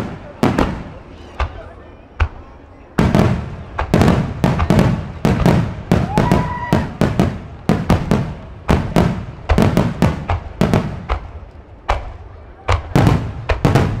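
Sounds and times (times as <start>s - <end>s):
fireworks bursting with echo: 0.0s - 14.0s
rising firework whistle: 5.9s - 7.0s.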